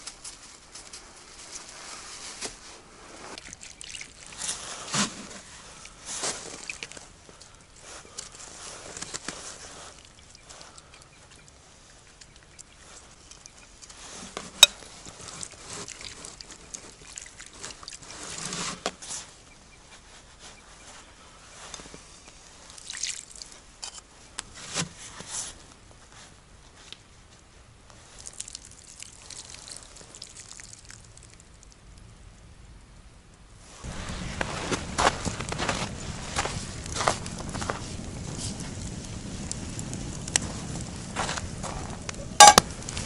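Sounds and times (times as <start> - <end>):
water poured onto ground: 3.3 - 7.1, 15.1 - 18.7, 22.7 - 23.6, 28.0 - 31.5
water trickling and splashing: 3.3 - 18.8, 22.3 - 23.8, 28.0 - 31.8.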